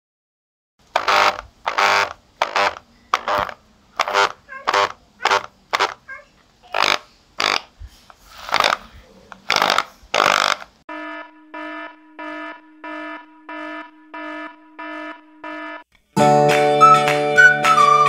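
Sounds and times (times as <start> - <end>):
hammer drill buzzing: 0.9 - 6.1, 6.7 - 7.7, 9.5 - 10.8
electronic warning beep: 10.9 - 15.8.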